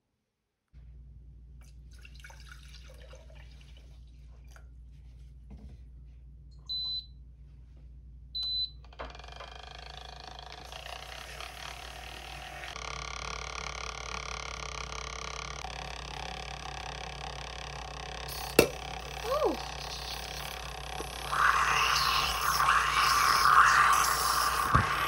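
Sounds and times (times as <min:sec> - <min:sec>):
coffee machine whirring: 0:08.9 - 0:25.0.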